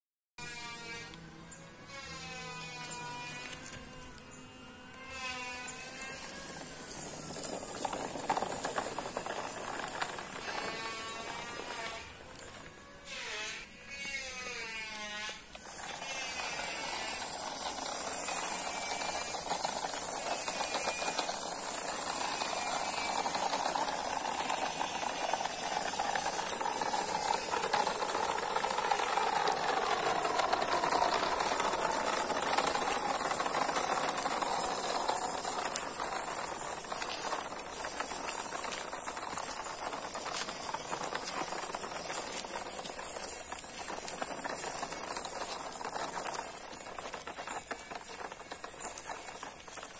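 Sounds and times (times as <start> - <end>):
model truck motor whirring: 0.4 - 49.9
tyres rattling over gravel: 5.1 - 13.0, 15.0 - 49.9.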